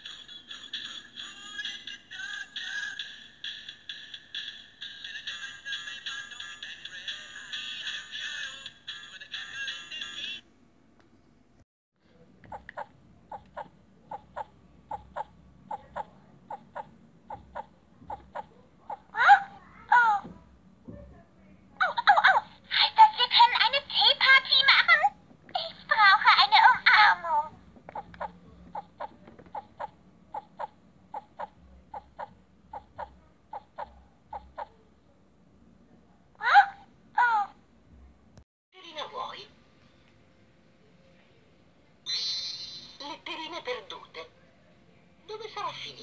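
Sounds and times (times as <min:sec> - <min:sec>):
toy playing sobbing cry: 0:00.0 - 0:10.4, 0:28.0 - 0:34.8
squeaky toy sobbing: 0:12.5 - 0:20.2, 0:25.6 - 0:34.8, 0:36.4 - 0:37.6.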